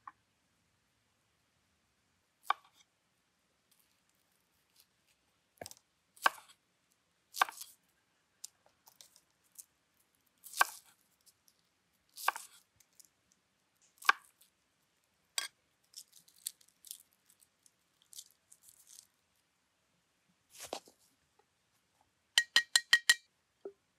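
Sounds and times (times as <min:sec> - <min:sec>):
onion skin crackling: 0:10.4 - 0:13.1, 0:15.8 - 0:19.2.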